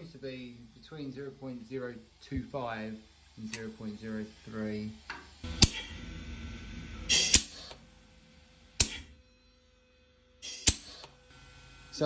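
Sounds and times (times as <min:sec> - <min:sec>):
faint steady hum: 0:00.0 - 0:12.0
short hiss: 0:07.1 - 0:07.8, 0:10.4 - 0:11.1.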